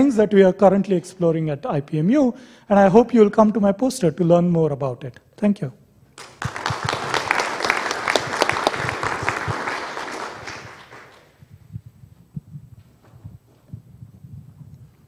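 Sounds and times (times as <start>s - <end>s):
audience applauding: 6.2s - 11.4s.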